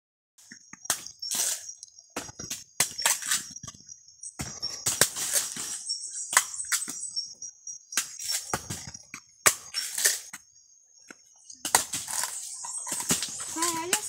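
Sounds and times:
machete knocks and cracks: 0:11.6 - 0:14.0.

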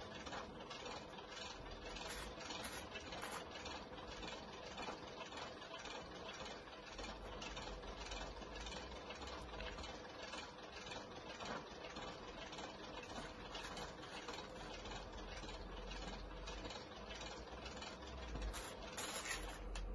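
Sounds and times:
roller blind mechanism whirring: 0:00.0 - 0:04.4, 0:17.2 - 0:19.9.

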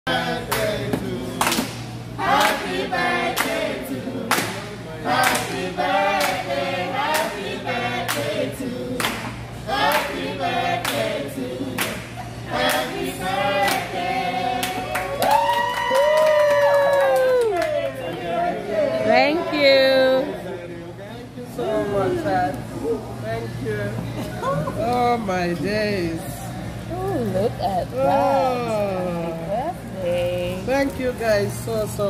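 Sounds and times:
group singing a birthday song: 0:00.0 - 0:15.4
people clapping in time: 0:14.6 - 0:18.2.

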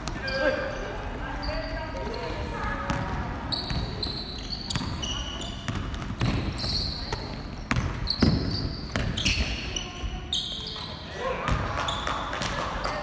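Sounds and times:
shoes squeaking on hardwood floor: 0:03.5 - 0:11.0
basketball bouncing: 0:04.7 - 0:05.0, 0:05.7 - 0:09.5.

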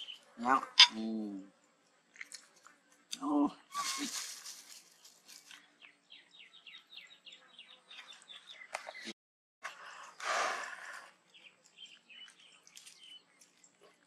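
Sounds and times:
small bird chirping: 0:00.0 - 0:01.0, 0:11.3 - 0:14.0
loud rustling hiss: 0:03.7 - 0:05.4.

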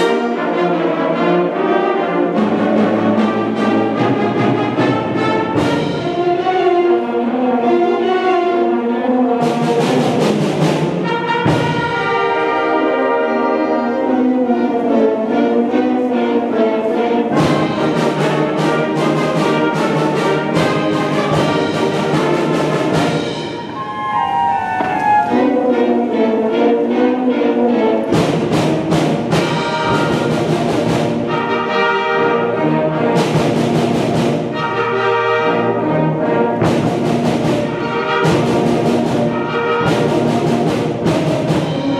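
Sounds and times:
concert band playing: 0:00.0 - 0:15.0, 0:16.6 - 0:41.9
drum kit percussion: 0:04.0 - 0:06.4, 0:17.4 - 0:25.7, 0:28.1 - 0:31.5, 0:36.6 - 0:41.9.

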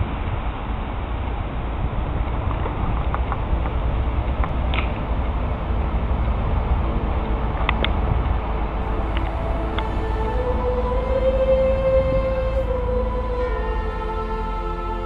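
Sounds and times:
wind buffeting microphone: 0:00.0 - 0:10.8.

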